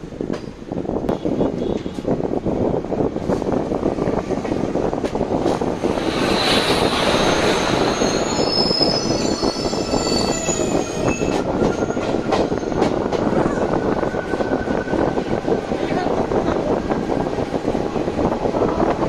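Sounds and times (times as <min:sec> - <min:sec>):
passing train rumbling: 0:00.0 - 0:19.0
high wheel squeal: 0:06.0 - 0:15.3.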